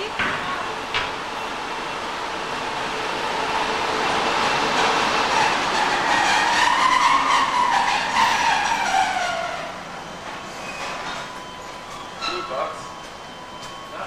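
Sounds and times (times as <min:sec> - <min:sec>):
railway cars rumbling: 0:00.0 - 0:14.0
train wheels squealing: 0:04.0 - 0:14.0.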